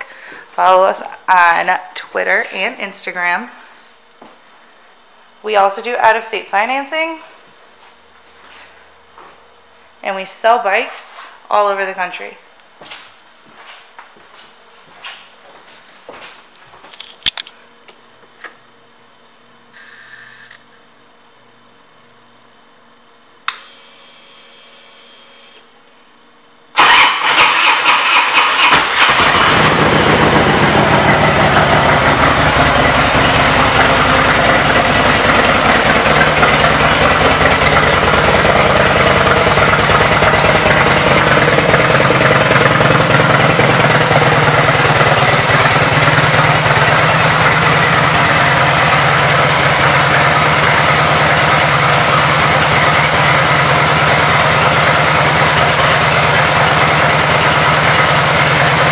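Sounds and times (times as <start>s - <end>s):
motorcycle engine starting and idling: 26.8s - 58.9s.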